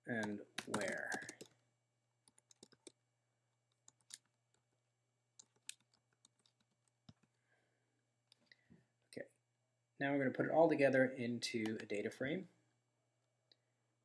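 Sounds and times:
computer keyboard typing: 0.1s - 1.5s, 2.2s - 3.0s, 3.7s - 4.6s, 5.4s - 7.3s.

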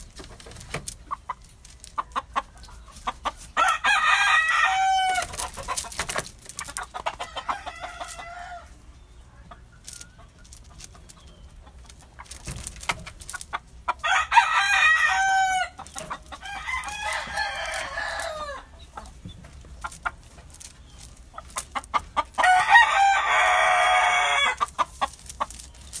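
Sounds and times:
bird pecking gravel: 0.0s - 8.6s, 9.7s - 26.0s
rooster crowing: 3.6s - 5.3s, 7.2s - 8.8s, 14.0s - 15.8s, 16.4s - 18.8s, 22.4s - 24.6s.

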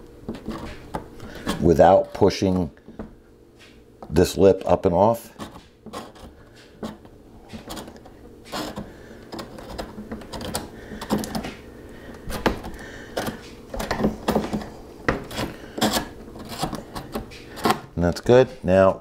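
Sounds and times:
metal tool scraping plastic: 0.3s - 1.8s, 5.3s - 11.6s, 12.3s - 17.9s.

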